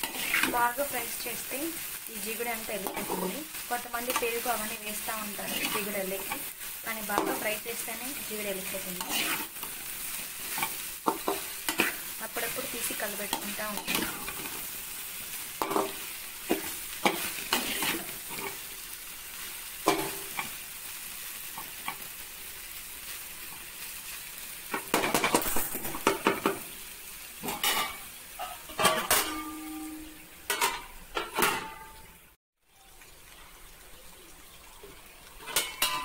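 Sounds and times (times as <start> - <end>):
spatula scraping pan: 0.0 - 0.7, 5.2 - 7.6, 8.2 - 14.8, 15.6 - 18.7
okra sizzling in oil: 0.0 - 36.0.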